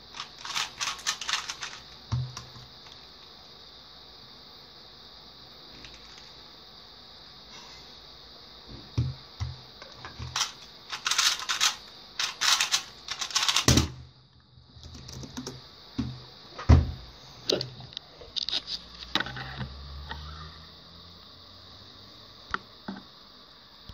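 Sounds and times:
puzzle cube clattering in fast turns: 0.1 - 2.6, 10.3 - 14.0.

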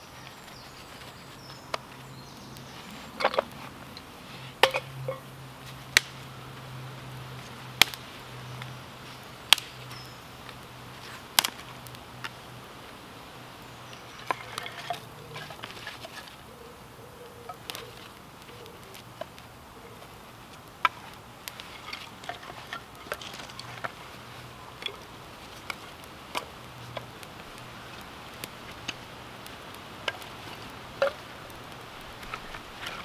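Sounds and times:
campfire pops and snaps: 0.2 - 16.5, 17.5 - 33.0.

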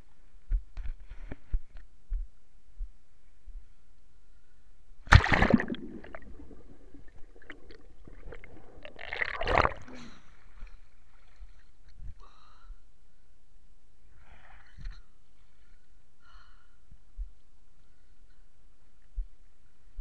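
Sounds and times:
water splashing against camera: 5.1 - 9.9
water gurgles and drips: 5.1 - 12.0.

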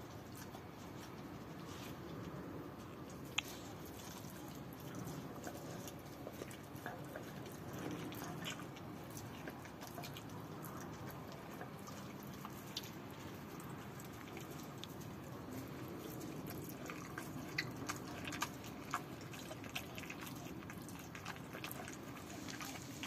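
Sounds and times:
dog licking and chewing meat: 0.0 - 23.0.

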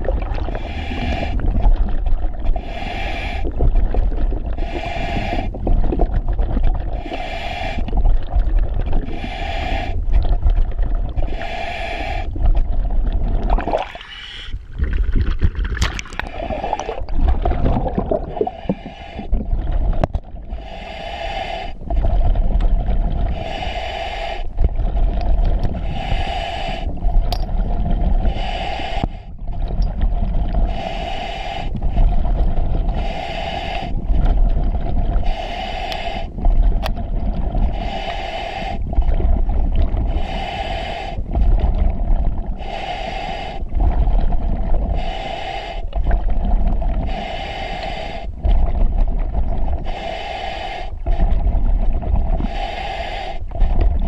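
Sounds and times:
exhaled bubbles gurgling: 0.0 - 54.0
regulator hissing on inhale: 0.4 - 1.7, 2.4 - 3.6, 4.5 - 5.6, 6.9 - 8.1, 9.0 - 10.2, 11.2 - 12.7, 14.0 - 14.6, 18.2 - 27.1, 28.0 - 34.5, 35.1 - 36.8, 37.5 - 54.0.

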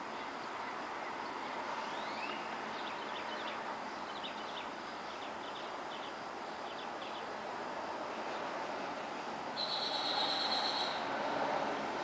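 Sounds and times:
birds chirping: 0.0 - 7.4, 9.6 - 11.0
distant traffic hum: 0.0 - 12.0
rising bird whistle: 9.6 - 11.1.

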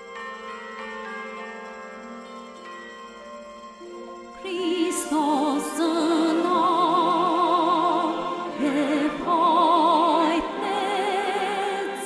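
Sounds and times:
woman singing with vibrato: 4.4 - 12.0.

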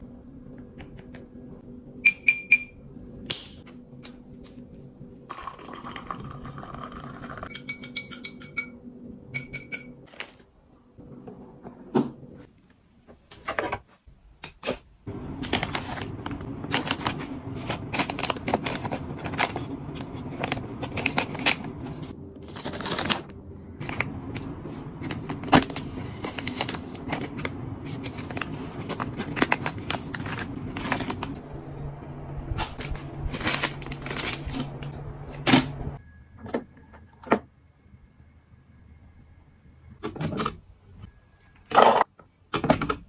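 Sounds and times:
plastic packs crinkling: 15.4 - 24.2, 32.7 - 34.9.

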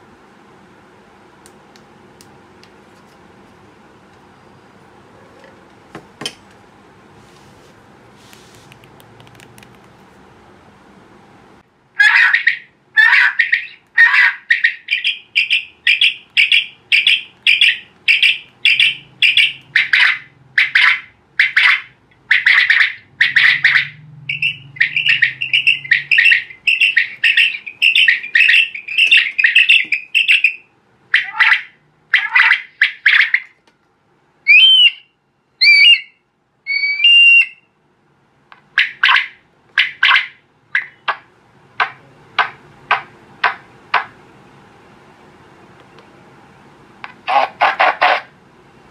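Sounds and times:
whistling duck calls: 13.4 - 30.6, 34.5 - 37.6
recorded duck quacks: 19.3 - 30.3, 47.2 - 48.3.

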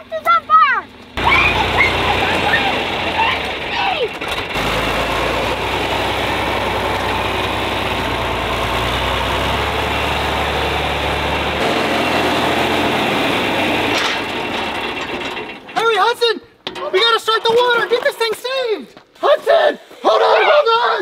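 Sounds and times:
tractor engine idling: 0.0 - 18.0.

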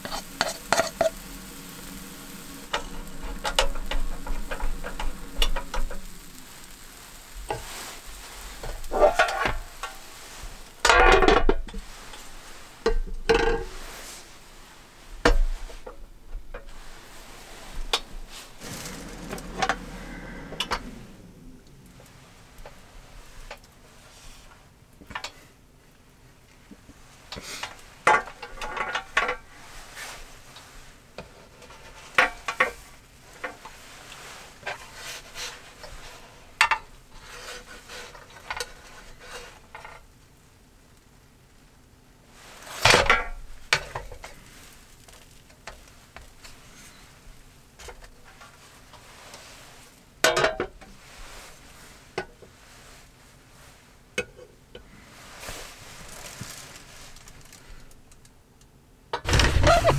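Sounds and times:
metal spatula scraping hot plate: 0.0 - 12.6, 16.8 - 22.8
pancake sizzling: 0.0 - 15.8, 16.6 - 23.8, 42.3 - 47.8
lid clattering: 59.2 - 59.9.

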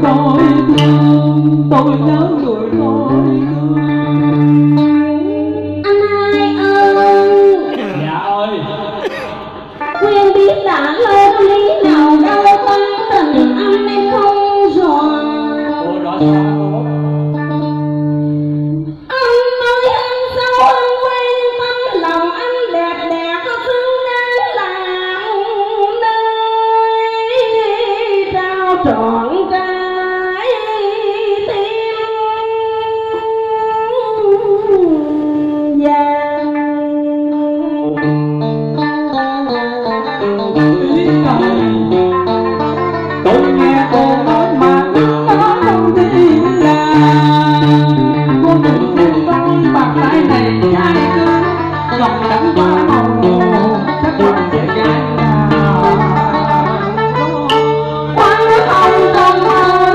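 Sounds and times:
person singing: 0.0 - 17.8, 18.9 - 38.2, 38.8 - 59.9
guitar melody: 0.0 - 59.9.

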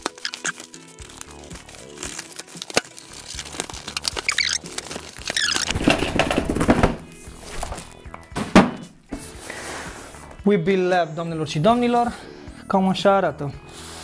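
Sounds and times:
packaging clicks: 0.0 - 6.8
packaging scraping: 0.0 - 8.0
packaging rustling and squeaking: 0.0 - 8.2.

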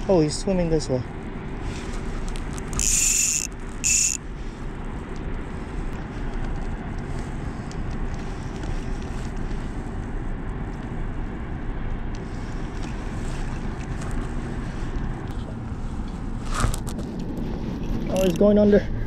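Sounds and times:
fishing reel clicking: 2.6 - 4.2.

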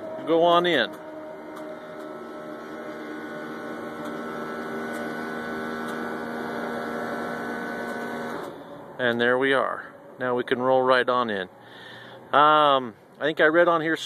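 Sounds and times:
hydraulic pump motor humming: 0.0 - 9.0.

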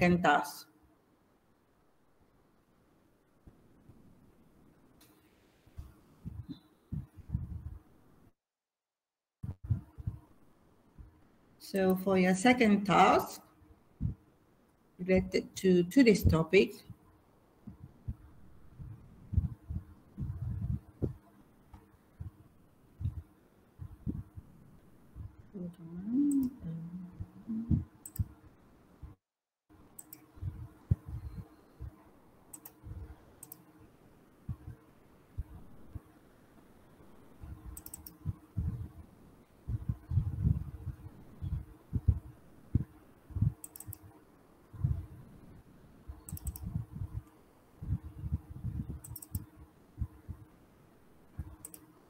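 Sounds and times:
computer mouse and keyboard clicks: 28.0 - 28.4, 32.5 - 32.8, 33.4 - 33.7, 37.7 - 38.2, 43.6 - 44.1, 46.2 - 46.8, 49.0 - 49.5, 51.6 - 51.9
typing on a keyboard: 37.8 - 38.2, 46.3 - 46.7.

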